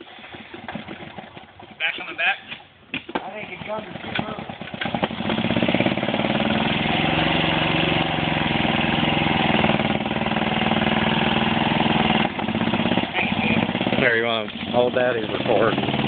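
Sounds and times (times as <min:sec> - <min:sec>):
golf cart engine running: 0:00.0 - 0:02.2, 0:03.3 - 0:16.0.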